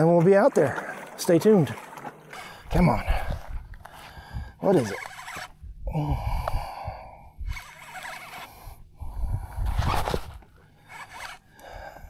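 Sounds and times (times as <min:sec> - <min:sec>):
man breathing hard: 0:02.4 - 0:04.6, 0:05.8 - 0:07.4, 0:08.5 - 0:09.6, 0:11.5 - 0:12.0
wind rumble: 0:08.8 - 0:10.4
fishing rod handling noise: 0:09.6 - 0:11.7.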